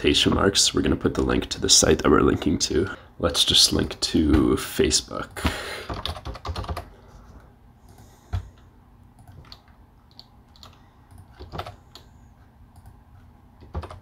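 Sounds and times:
keyboard keystrokes and clicks: 5.9 - 6.9, 9.2 - 12.1, 13.6 - 14.0.

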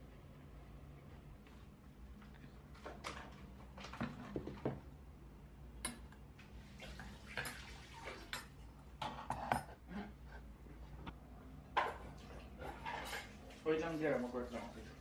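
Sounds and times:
cutlery clinking on wooden plates: 8.3 - 9.9, 11.8 - 13.4.

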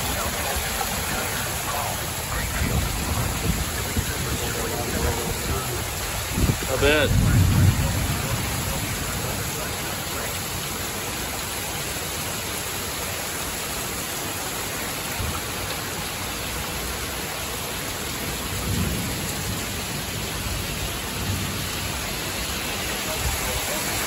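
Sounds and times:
low thunder rumbles: 0.0 - 10.6, 18.2 - 24.0
heavy rain pouring: 0.0 - 24.0
strong wind thrashing trees: 0.0 - 24.0.

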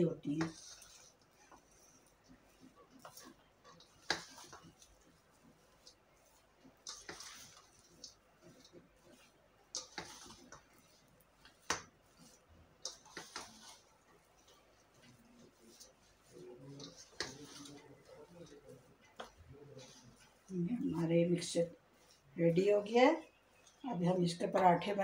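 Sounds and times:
spoon scraping a steel bowl: 6.8 - 22.2.

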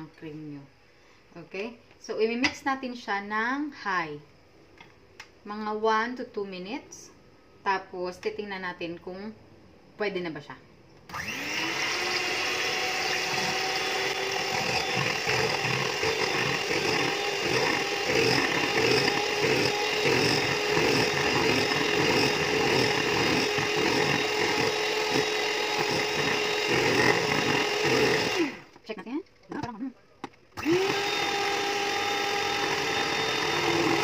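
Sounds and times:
electric hand mixer whipping cream: 11.1 - 28.7, 30.6 - 34.0.

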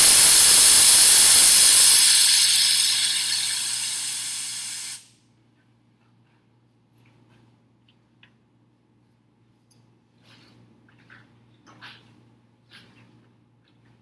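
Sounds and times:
compressed air can hissing: 0.0 - 5.1.

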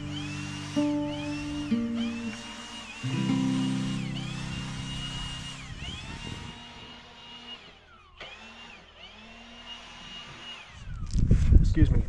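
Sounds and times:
power tool motor whining: 0.0 - 11.3.

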